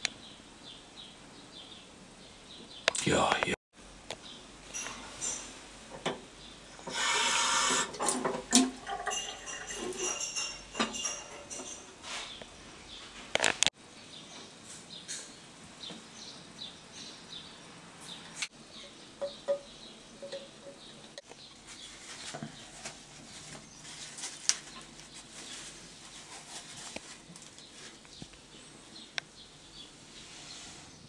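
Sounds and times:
rustling and handling noise: 0:06.8 - 0:13.7, 0:20.7 - 0:28.9.

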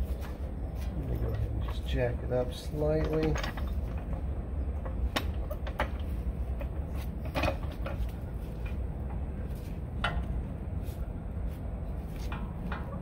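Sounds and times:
steady low rumble: 0:00.0 - 0:13.0
metal parts clicking and knocking: 0:01.2 - 0:08.8.

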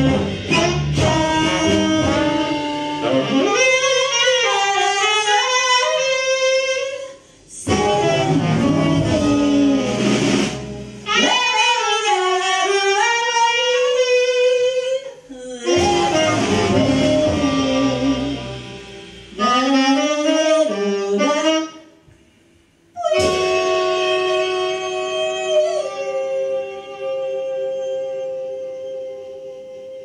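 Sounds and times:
trombone: 0:00.0 - 0:07.0, 0:07.6 - 0:14.5, 0:15.7 - 0:21.8, 0:23.0 - 0:26.4
saxophone: 0:00.0 - 0:22.2, 0:22.9 - 0:30.0
woman's wordless vocals: 0:15.1 - 0:15.8.

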